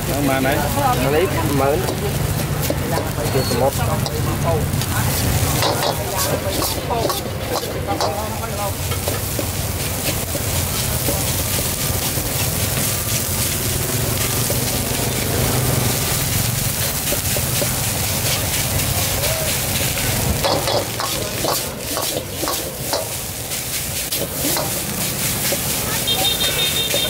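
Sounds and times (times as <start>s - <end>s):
rice sizzling in a wok: 0.0s - 27.0s
metal ladle scraping a wok: 5.1s - 16.0s, 19.6s - 27.0s.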